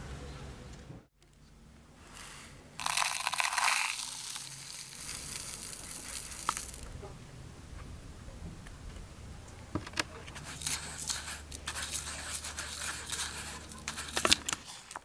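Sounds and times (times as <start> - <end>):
sand pouring into plastic cup: 2.2 - 6.9, 10.4 - 14.7.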